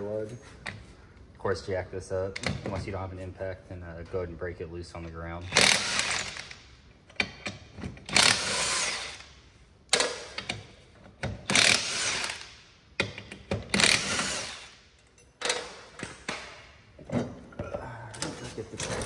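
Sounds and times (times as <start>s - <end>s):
impact wrench bursts: 5.4s - 6.6s, 8.0s - 9.4s, 11.3s - 14.9s.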